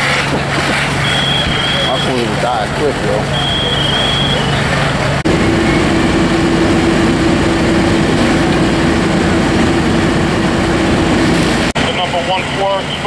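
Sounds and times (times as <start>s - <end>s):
diesel engine at high revs: 0.0s - 13.0s.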